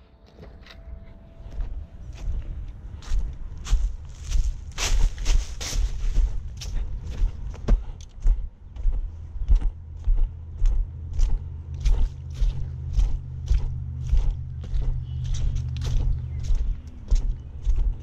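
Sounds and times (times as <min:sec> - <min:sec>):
boot footsteps crunching dry leaves: 0:01.5 - 0:07.6, 0:11.8 - 0:17.8.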